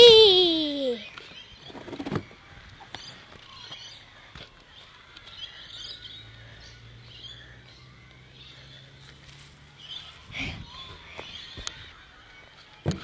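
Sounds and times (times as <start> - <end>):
faint bird chirps: 0.0 - 9.2.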